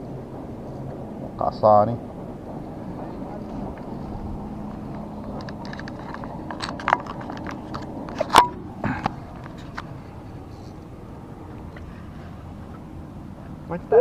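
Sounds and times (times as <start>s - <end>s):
steady background noise: 0.0s - 14.0s
objects clicking and knocking: 4.9s - 9.9s.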